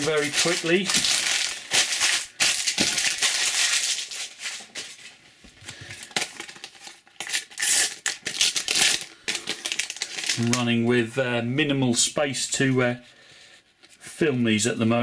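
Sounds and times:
stickers rustling: 0.0 - 5.1
paper packets torn and crinkled: 0.0 - 10.8.

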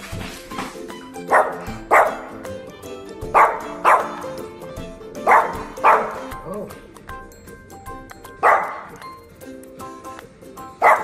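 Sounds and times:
background music: 0.0 - 11.0
small dog barking sharply: 1.3 - 2.3, 3.4 - 4.2, 5.3 - 6.3, 8.4 - 8.9.

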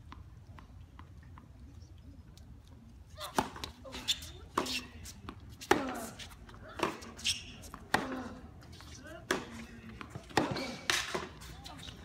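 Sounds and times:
tennis ball struck with rackets: 9.2 - 11.4.

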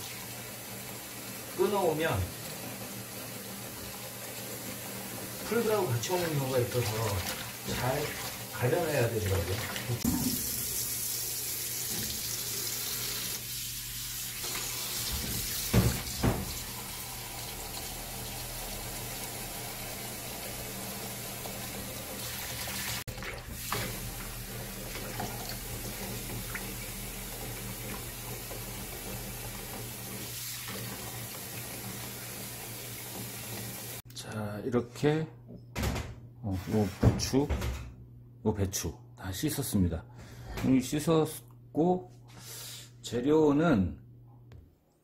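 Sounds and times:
tap running into basin: 11.6 - 12.9, 14.4 - 20.1, 21.0 - 34.0.

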